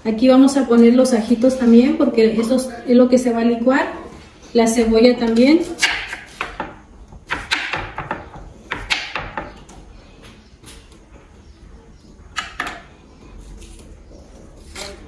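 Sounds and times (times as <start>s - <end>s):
knife chopping on wooden board: 5.7s - 9.7s.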